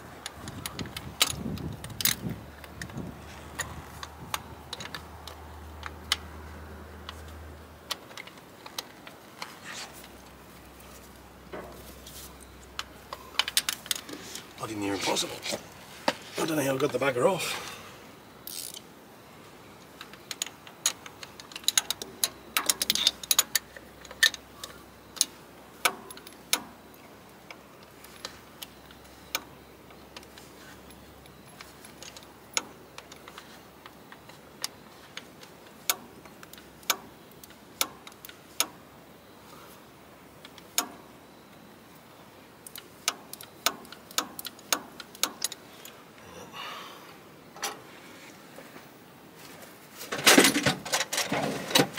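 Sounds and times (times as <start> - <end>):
hand tools clicking on metal: 42.6 - 46.0.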